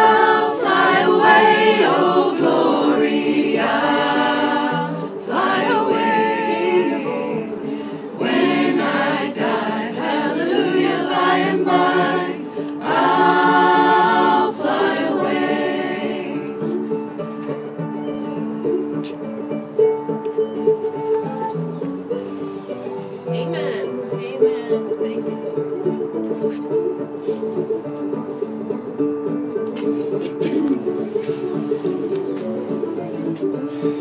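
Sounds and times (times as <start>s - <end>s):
group singing a hymn: 0.0s - 17.0s.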